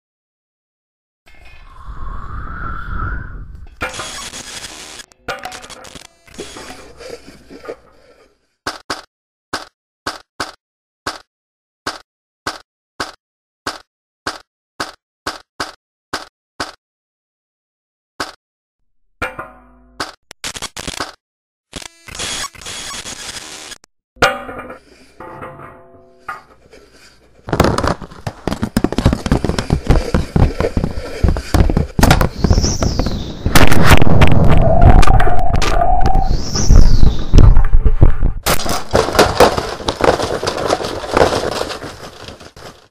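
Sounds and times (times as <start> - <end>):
rising and falling whistle: 1.5 - 3.8, 34.6 - 37.4
dominoes knocking while toppling: 27.5 - 32.2
clatter of knocks and pops: 27.5 - 35.7, 37.0 - 42.9.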